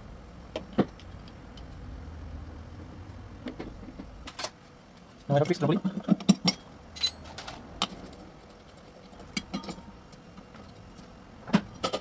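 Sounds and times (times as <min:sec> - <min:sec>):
metal clicks and clinks: 0:06.3 - 0:09.9.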